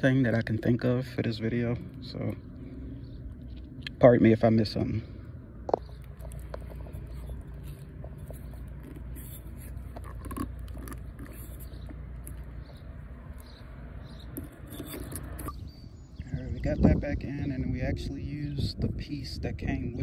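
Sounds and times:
low steady rumble: 0:00.0 - 0:20.0
clicks and scrapes on plastic: 0:05.7 - 0:15.6.

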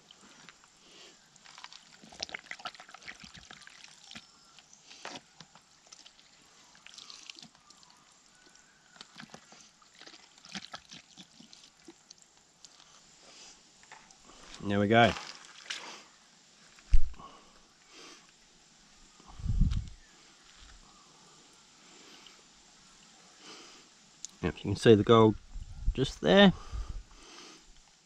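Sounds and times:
water trickling and splashing: 0:00.0 - 0:17.0.

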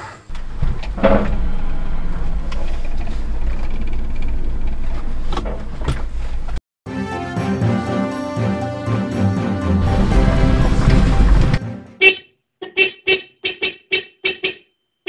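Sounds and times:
music: 0:06.9 - 0:12.0.

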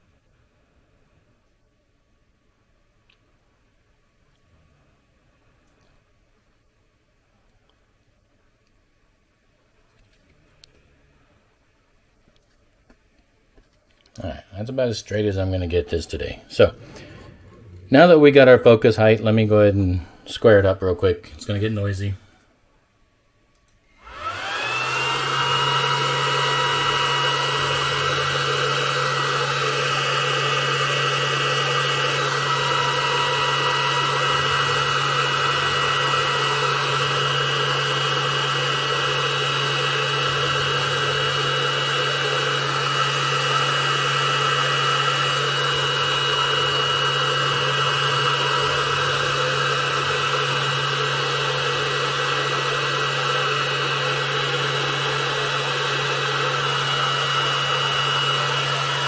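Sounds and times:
small electric motor whining: 0:23.9 - 0:59.0.

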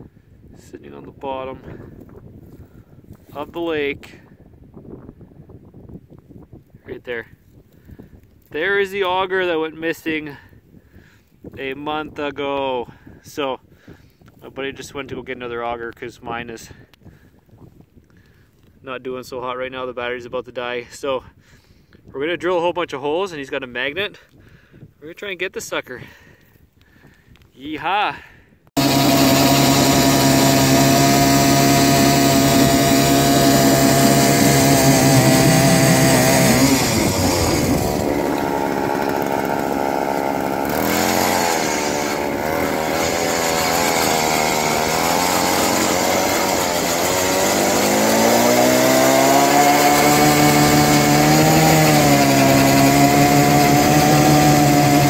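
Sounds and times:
ice auger boring through ice: 0:28.8 - 0:55.0
power drill whining: 0:28.8 - 0:55.0.

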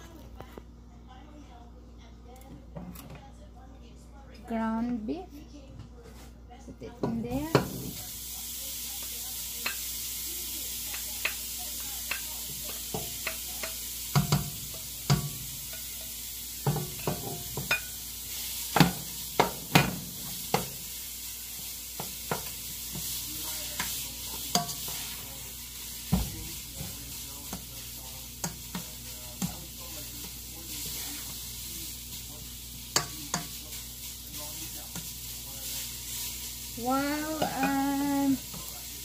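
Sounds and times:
meat sizzling in a pot: 0:07.2 - 0:39.0
utensil knocking and scraping pot: 0:10.8 - 0:20.8, 0:22.0 - 0:38.7.

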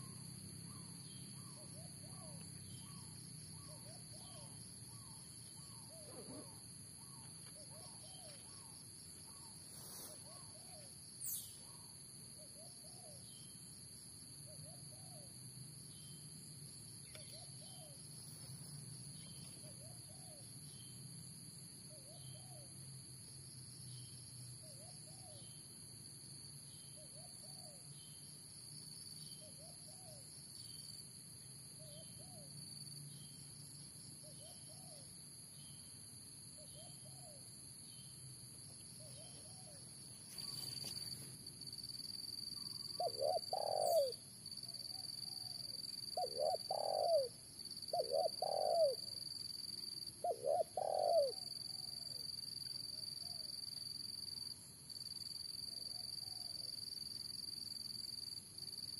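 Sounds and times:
dove cooing: 0:05.6 - 0:06.6, 0:43.0 - 0:44.2, 0:46.2 - 0:49.1, 0:50.2 - 0:51.9.

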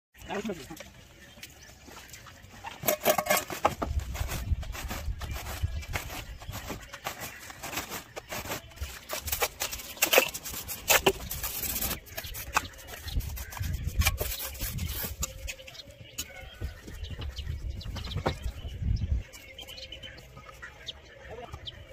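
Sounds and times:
trowel scraping wet mortar: 0:02.8 - 0:15.7.

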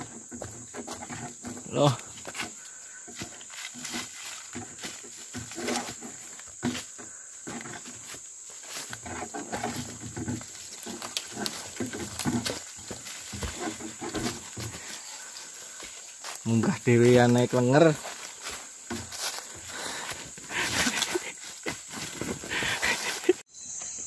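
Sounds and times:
high insect drone: 0:00.0 - 0:24.0
boots crunching on dry leaves: 0:10.4 - 0:23.4
man grunting and breathing hard: 0:19.6 - 0:21.6, 0:22.2 - 0:23.4.

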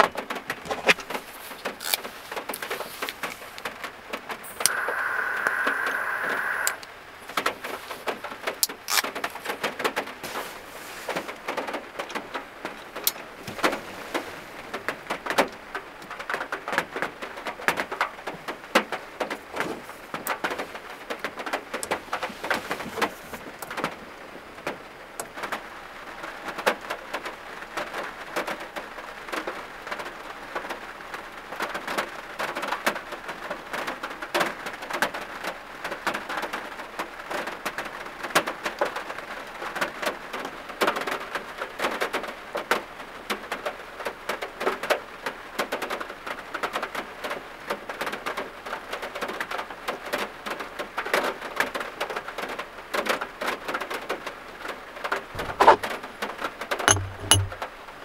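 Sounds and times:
heavy rain on van roof: 0:00.0 - 0:04.4, 0:06.9 - 0:56.8
loud steady hiss: 0:04.4 - 0:09.1.

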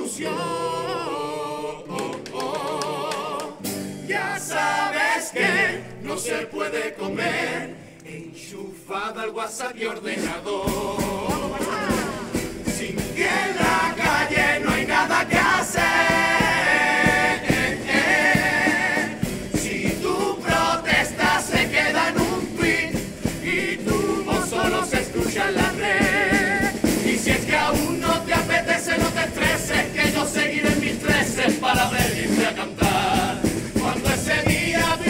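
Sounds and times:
choir singing in parts: 0:00.0 - 0:35.0
steady beat: 0:10.7 - 0:35.0.

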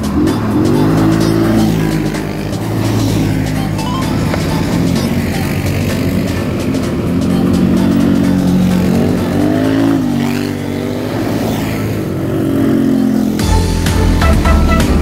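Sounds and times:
atv engines revving: 0:00.0 - 0:15.0.

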